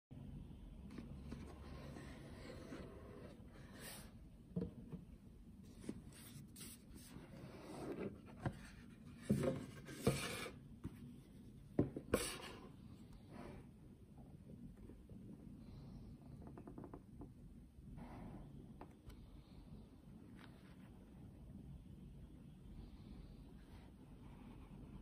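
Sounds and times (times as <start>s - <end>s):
boxes sliding and rubbing: 0.9s - 4.2s, 5.7s - 11.0s, 12.0s - 13.7s.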